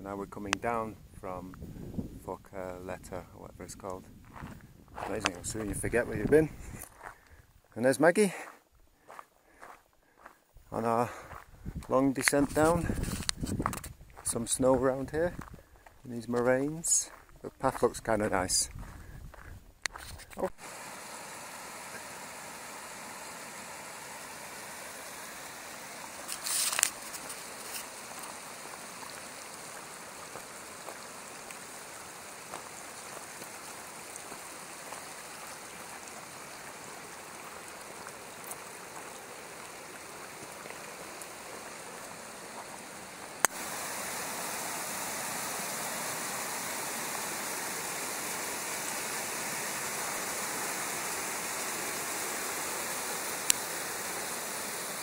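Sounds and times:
stream rushing over rocks: 20.4s - 55.0s.

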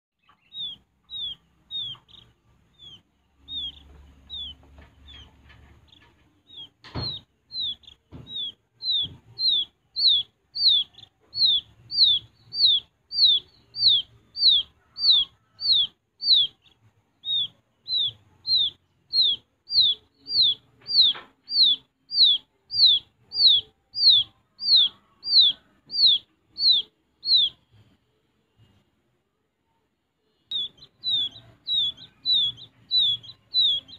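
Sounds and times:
quail chick peeping: 0.2s - 28.9s, 30.4s - 33.9s
sharp knock: 6.8s - 7.2s.

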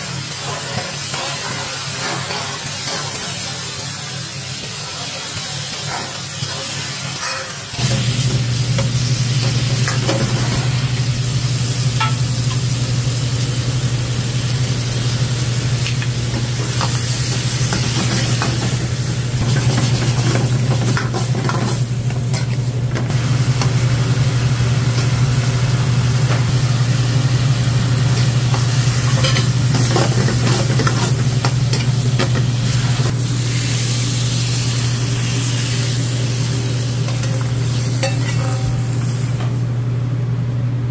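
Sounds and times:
food sizzling in a wok: 0.0s - 39.9s.

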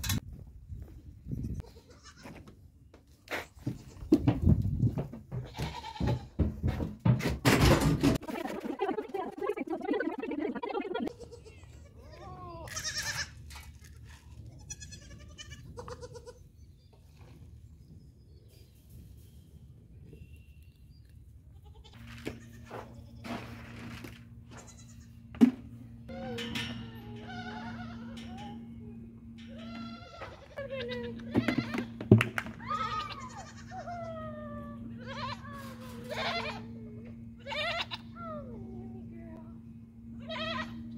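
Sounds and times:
goats bleating: 1.6s - 2.3s, 5.4s - 6.3s, 11.1s - 13.4s, 14.5s - 16.4s, 26.1s - 28.7s, 29.4s - 32.0s, 32.6s - 36.8s, 37.4s - 38.2s, 40.2s - 40.9s
goat bleating softly: 1.6s - 2.4s, 5.5s - 6.2s, 11.1s - 13.3s
steady low hum: 4.2s - 40.9s
low background rumble: 23.0s - 40.9s.

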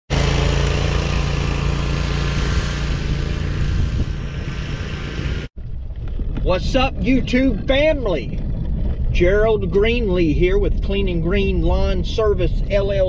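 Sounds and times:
riding mower engine running: 0.1s - 9.1s.

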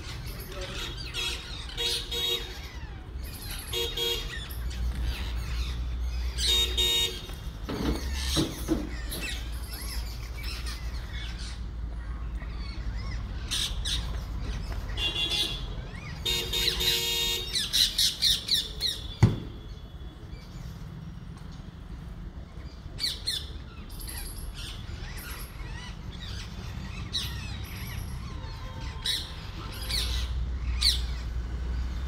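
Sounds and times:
parakeets screeching: 0.0s - 19.2s, 22.6s - 31.4s
traffic rumble: 0.0s - 32.0s
sharp thump: 19.2s - 19.6s.

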